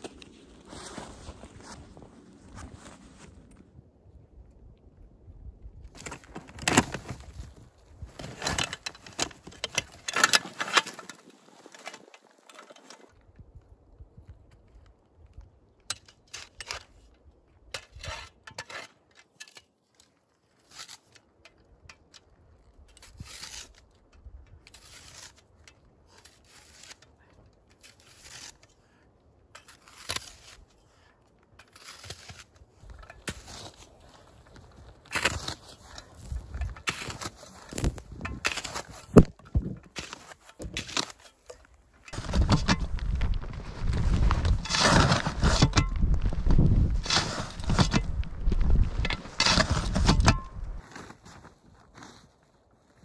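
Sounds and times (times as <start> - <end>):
crunching and rustling handling noises: 5.8 - 13.3, 22.5 - 53.0.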